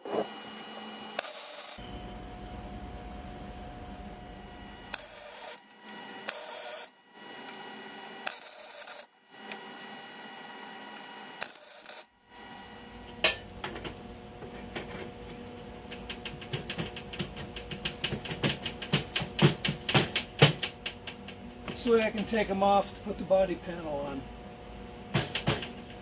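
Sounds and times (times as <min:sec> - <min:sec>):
welding hiss: 0:01.1 - 0:01.8, 0:04.9 - 0:05.6, 0:06.2 - 0:06.9, 0:07.6 - 0:09.1, 0:11.4 - 0:12.1.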